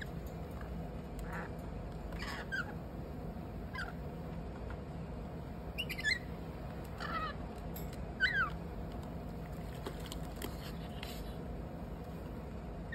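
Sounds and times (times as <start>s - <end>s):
lorikeets chirping: 2.2s - 2.8s, 3.7s - 4.0s, 5.8s - 6.4s, 8.2s - 8.6s.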